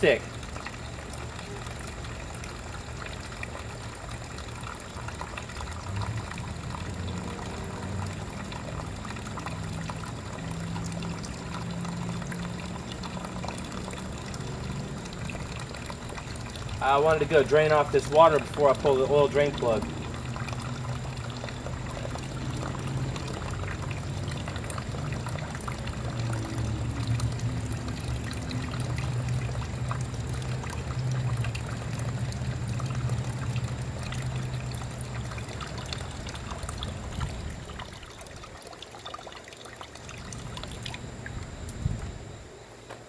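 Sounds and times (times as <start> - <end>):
water pouring into metal pan: 0.0 - 41.0.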